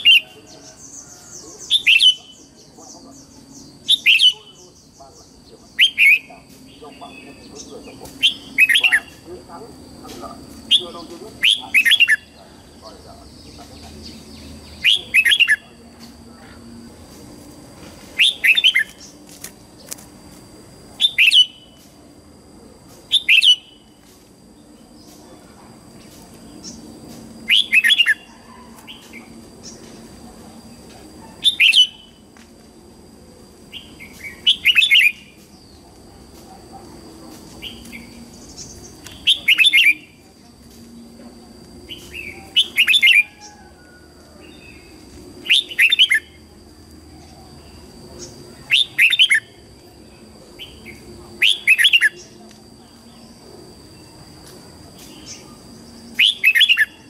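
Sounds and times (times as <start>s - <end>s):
bird singing whistled phrases: 1.6s - 2.4s.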